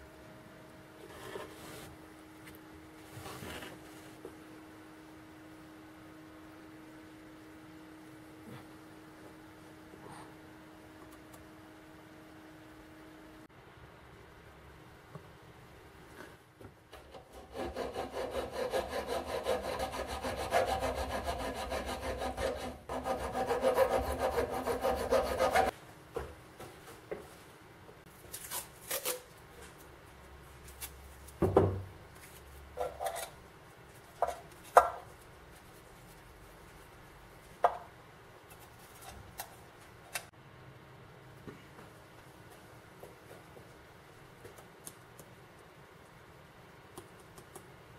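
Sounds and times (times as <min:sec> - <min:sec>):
hacksaw cutting metal: 0:17.1 - 0:25.7.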